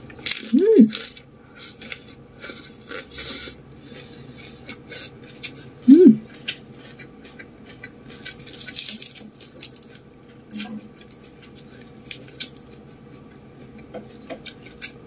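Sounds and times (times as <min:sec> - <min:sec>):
person humming: 0:00.5 - 0:01.0, 0:05.9 - 0:06.3
fingers rustling noodles: 0:08.1 - 0:10.0.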